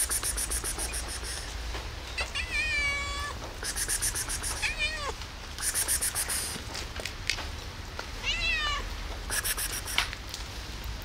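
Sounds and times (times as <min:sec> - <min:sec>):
cat meowing: 0:02.2 - 0:03.4, 0:04.2 - 0:05.2, 0:08.2 - 0:08.9.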